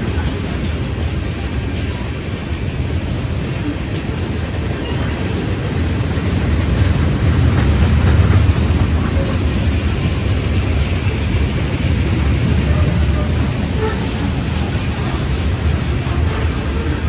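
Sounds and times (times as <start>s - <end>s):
freight train rumbling past: 0.0s - 17.0s.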